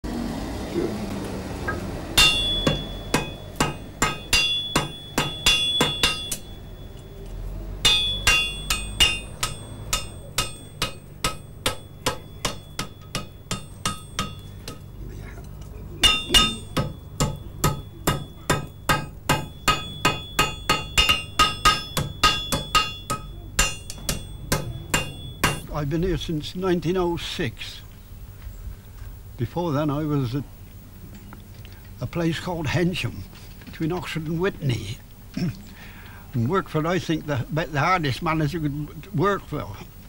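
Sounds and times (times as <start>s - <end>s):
hammer striking iron on anvil: 1.7s - 7.1s, 7.8s - 14.9s, 16.0s - 25.8s
anvil ringing: 1.7s - 7.2s, 7.8s - 14.9s, 16.0s - 25.8s.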